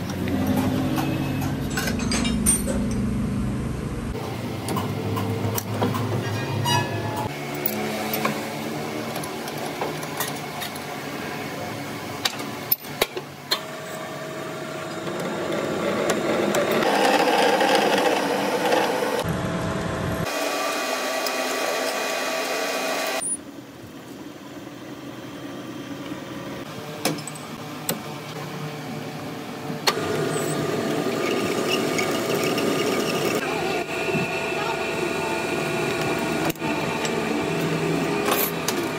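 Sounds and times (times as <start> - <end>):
metal lathe whine: 13.8 - 19.6, 30.0 - 38.9.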